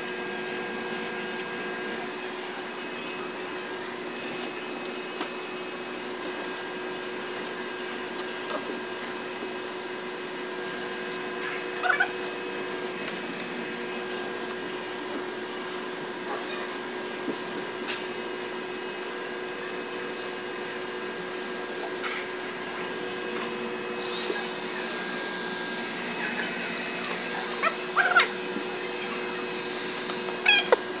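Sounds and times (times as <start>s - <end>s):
machine hum: 0.0s - 31.0s
whining tones: 22.5s - 31.0s.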